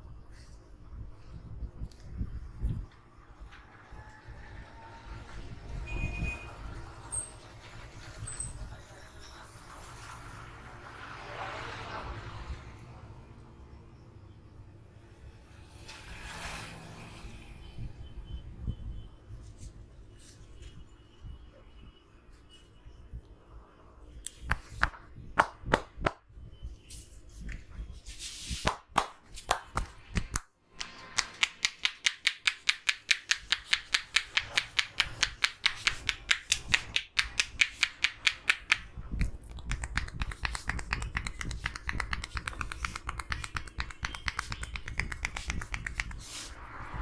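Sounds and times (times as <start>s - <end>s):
sharp snaps: 24.2s - 26.2s, 28.6s - 46.4s
hands tapping on head: 31.4s - 46.3s.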